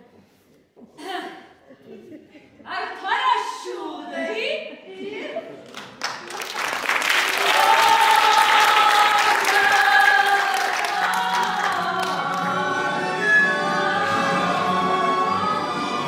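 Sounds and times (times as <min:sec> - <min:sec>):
applause: 0:05.6 - 0:12.5
women singing held notes: 0:07.4 - 0:16.0.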